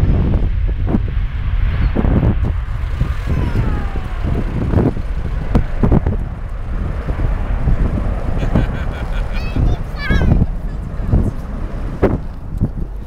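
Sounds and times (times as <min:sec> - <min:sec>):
jet engine whine: 0:00.0 - 0:13.0
jet engines roaring at takeoff: 0:00.0 - 0:13.0.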